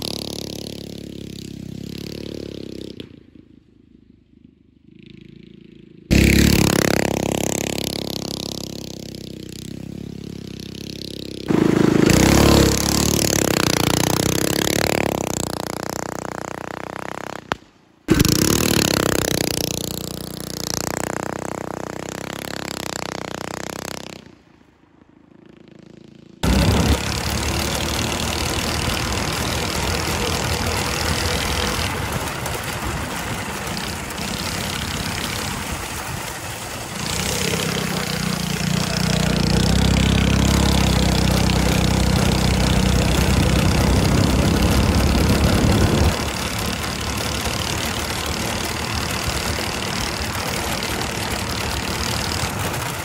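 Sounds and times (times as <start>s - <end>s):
go-kart engine running: 0.0s - 53.0s.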